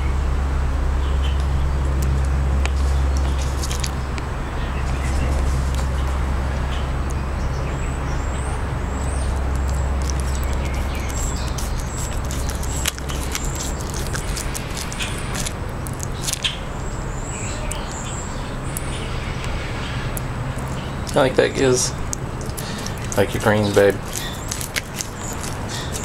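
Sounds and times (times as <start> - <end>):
low rumble of traffic: 0.0 - 26.0
small birds chirping: 1.0 - 26.0
iguana biting and tearing leaves: 1.4 - 6.1, 8.9 - 16.6, 18.7 - 26.0
crisp crunches: 2.0 - 4.2, 9.2 - 16.5, 22.1 - 26.0.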